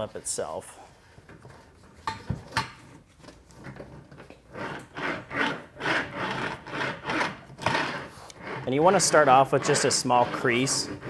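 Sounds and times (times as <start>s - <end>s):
hand roller scraping metal panel: 3.6s - 11.0s.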